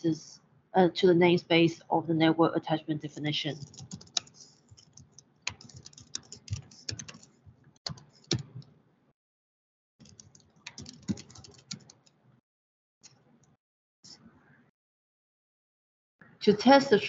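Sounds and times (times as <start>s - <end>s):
typing on computer keyboard: 3.6s - 8.7s, 10.0s - 12.2s.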